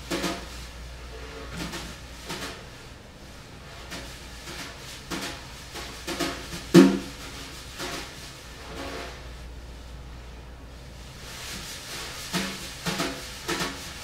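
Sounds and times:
utensils knocking and scraping metal pot: 0:00.0 - 0:02.8, 0:03.6 - 0:09.3, 0:11.5 - 0:14.0.

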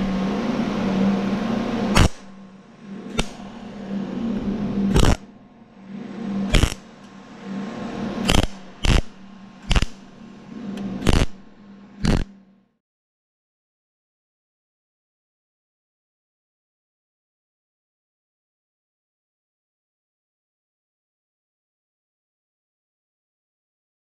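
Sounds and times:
welder low hum: 0:00.0 - 0:12.8
welding arc crackle: 0:01.9 - 0:02.4, 0:03.1 - 0:03.5, 0:04.9 - 0:05.2, 0:06.5 - 0:06.9, 0:08.3 - 0:10.2, 0:11.0 - 0:12.3.

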